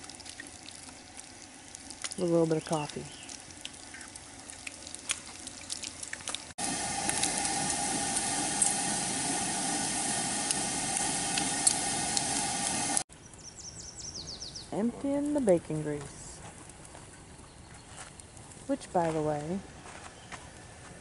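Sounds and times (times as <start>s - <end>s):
bacon sizzling and crackling: 0.0s - 13.0s
stove burner hissing: 6.6s - 13.1s.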